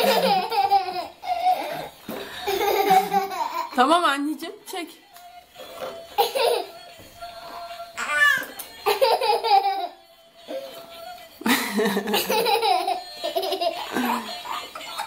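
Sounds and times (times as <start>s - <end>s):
baby and girl giggling: 0.0s - 3.8s, 6.2s - 6.8s, 8.0s - 10.0s, 11.5s - 15.0s.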